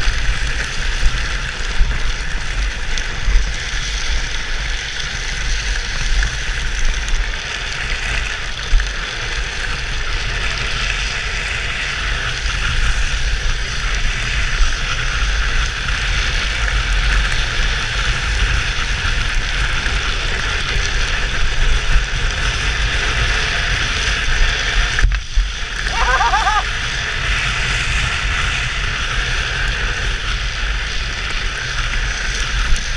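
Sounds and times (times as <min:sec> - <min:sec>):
wheels scraping on asphalt: 0:00.0 - 0:32.9
wind rumbling on camera: 0:00.0 - 0:32.9.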